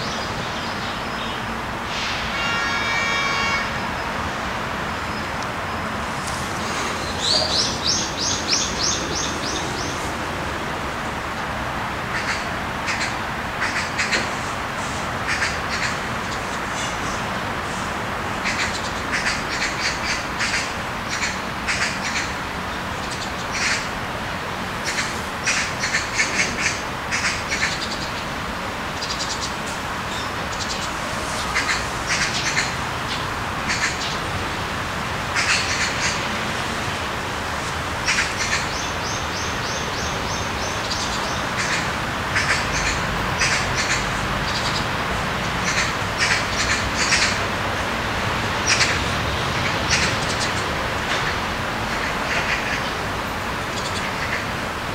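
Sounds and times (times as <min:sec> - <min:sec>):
birds chirping: 0:05.1 - 0:10.5, 0:38.0 - 0:47.9.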